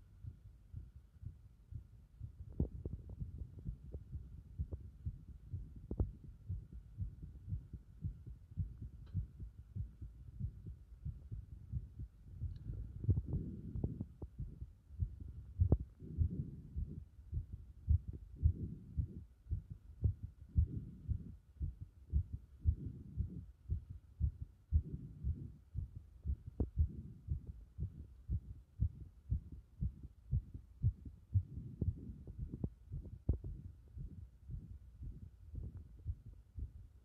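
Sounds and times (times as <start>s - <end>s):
heartbeat thumps: 0.0s - 37.0s
low rumble: 0.0s - 37.0s.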